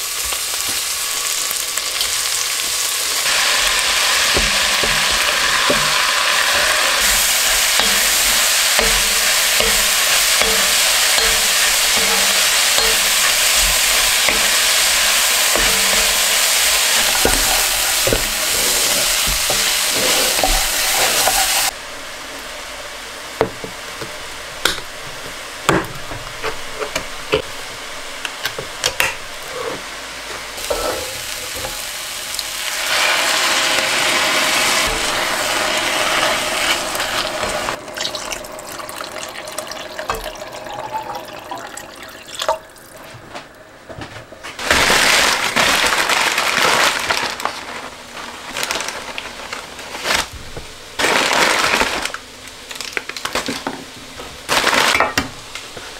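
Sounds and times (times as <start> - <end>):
liquid hissing in pan: 0.0 - 22.3, 30.6 - 42.0
wooden spatula stirring in pot: 3.2 - 21.7
paper bag crackling: 12.2 - 21.7, 44.6 - 50.4, 51.0 - 53.6, 54.5 - 55.2.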